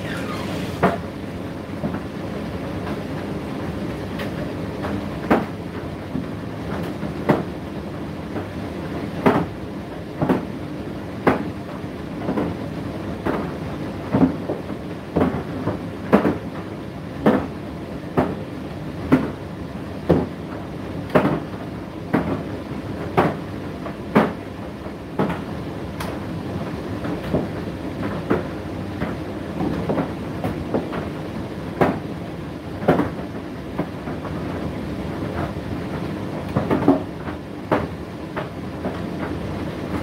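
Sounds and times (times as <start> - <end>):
tumble dryer humming: 0.0 - 1.1.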